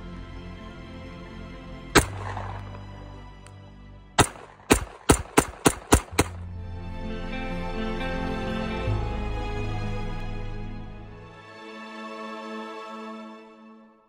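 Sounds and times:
background music: 0:00.0 - 0:14.0
blank pistol shots: 0:02.0 - 0:03.1, 0:04.2 - 0:06.5.

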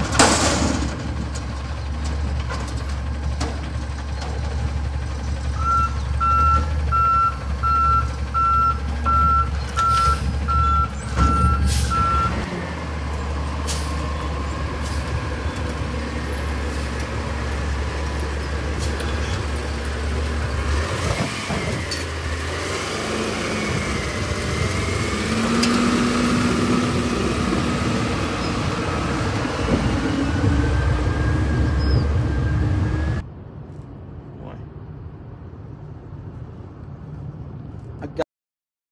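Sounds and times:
metal clanks: 0:00.0 - 0:04.6
heavy truck engine: 0:00.0 - 0:33.6
reversing alarm beeping: 0:05.6 - 0:12.4.

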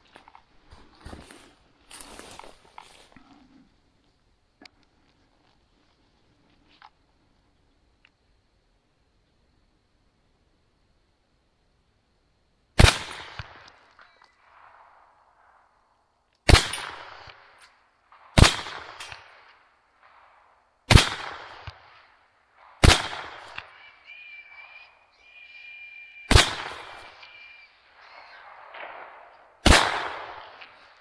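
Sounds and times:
rifle shots with echo: 0:12.8 - 0:15.7, 0:16.5 - 0:24.8, 0:26.3 - 0:27.4, 0:28.0 - 0:31.0.

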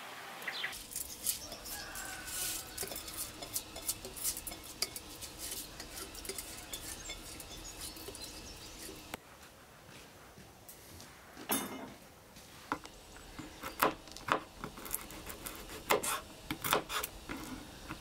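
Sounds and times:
metal spoon scraping saucepan: 0:00.8 - 0:09.2.

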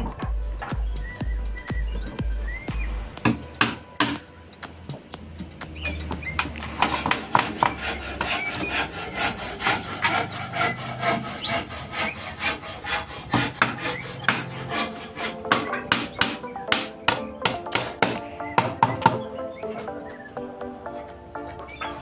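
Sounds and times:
hammer knocking nails into wood: 0:03.2 - 0:04.2, 0:15.5 - 0:19.2.

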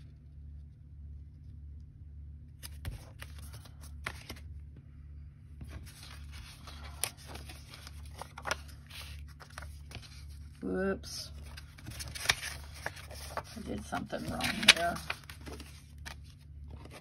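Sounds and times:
low steady hum: 0:00.0 - 0:17.0
paper rustling and sliding: 0:02.6 - 0:04.4, 0:05.6 - 0:10.6, 0:11.4 - 0:17.0.

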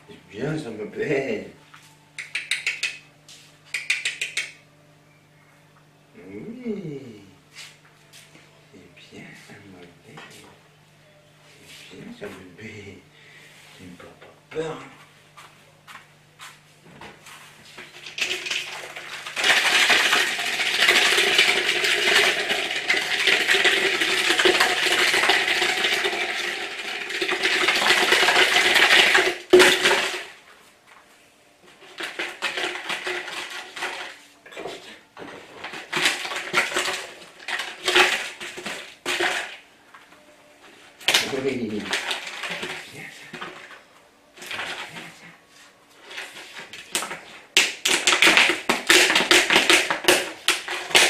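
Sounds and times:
bottle rattling across tiled floor: 0:17.8 - 0:30.4, 0:31.8 - 0:39.6, 0:41.1 - 0:43.8, 0:44.4 - 0:45.3, 0:46.0 - 0:51.0
plastic bottle rattling: 0:18.0 - 0:30.3, 0:31.8 - 0:34.8, 0:35.6 - 0:39.6, 0:41.1 - 0:43.8, 0:46.0 - 0:51.0.

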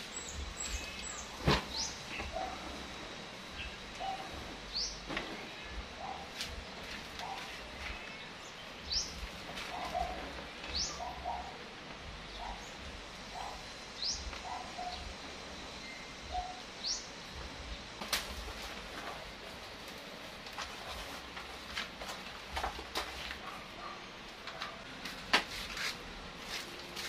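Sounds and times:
birds chirping: 0:00.0 - 0:18.5.

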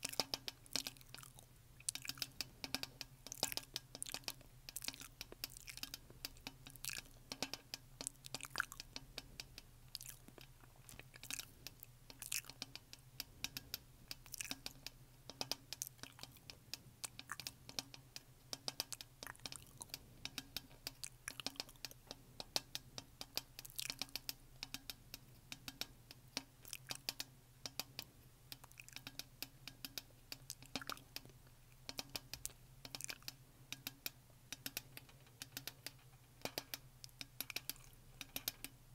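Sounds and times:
wet mouth clicks and smacks: 0:00.0 - 0:07.2, 0:08.0 - 0:12.8, 0:13.5 - 0:14.7, 0:15.7 - 0:17.8, 0:18.6 - 0:22.0, 0:23.3 - 0:24.2, 0:26.6 - 0:27.1, 0:28.5 - 0:29.2, 0:30.3 - 0:33.4.

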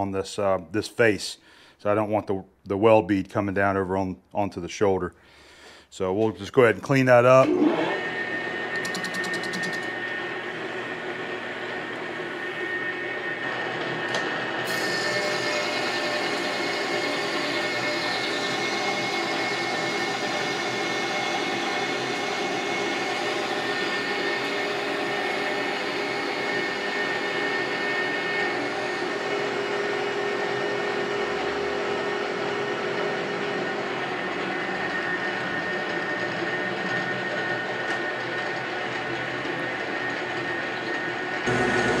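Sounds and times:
lathe tool cutting steel: 0:07.3 - 0:42.0
lathe motor hum: 0:07.4 - 0:42.0
steady whine: 0:39.0 - 0:42.0.

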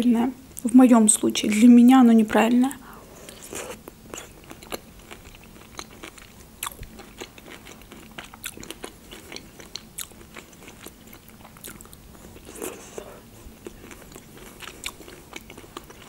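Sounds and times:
biting and chewing fruit: 0:03.3 - 0:16.0.

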